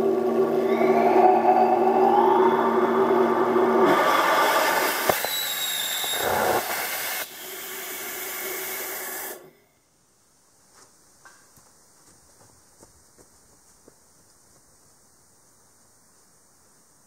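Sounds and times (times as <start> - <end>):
rocket engine rushing hiss: 0.5 - 9.4.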